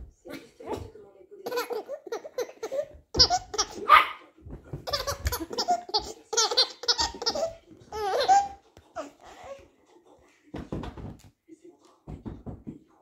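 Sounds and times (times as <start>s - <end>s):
baby laughing: 1.4s - 4.0s, 4.8s - 9.6s.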